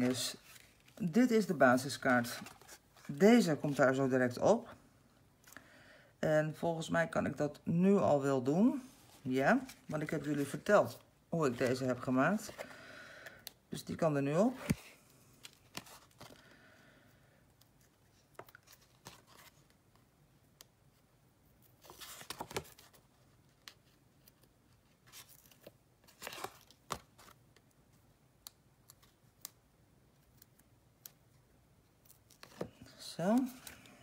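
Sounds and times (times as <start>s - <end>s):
paper rustling: 0.0s - 1.2s, 2.2s - 3.9s.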